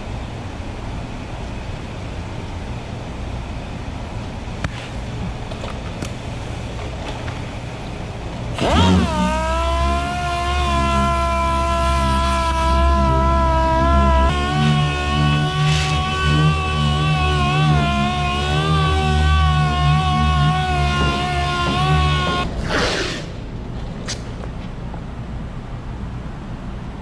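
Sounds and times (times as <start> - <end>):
low hum: 0.0 - 27.0
pneumatic sander whining: 8.5 - 23.4.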